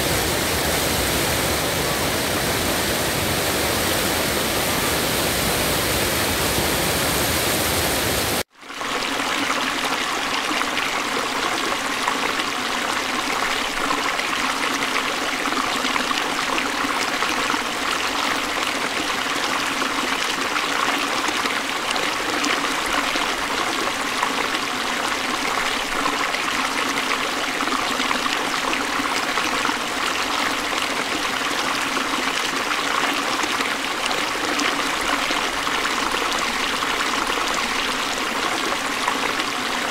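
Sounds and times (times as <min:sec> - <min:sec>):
water rushing over weir: 0:00.0 - 0:12.4.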